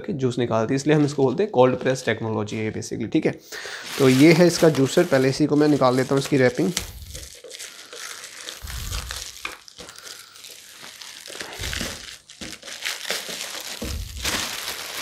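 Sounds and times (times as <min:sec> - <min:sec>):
plastic bag crinkling: 0:03.6 - 0:15.0.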